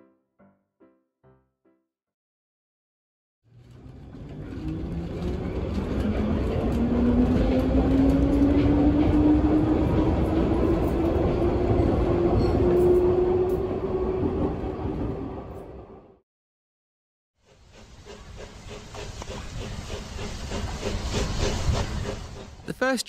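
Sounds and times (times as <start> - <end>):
train motor whine rising: 3.5 - 14.9
train wheels rumbling on rail: 3.5 - 15.9, 17.4 - 22.7.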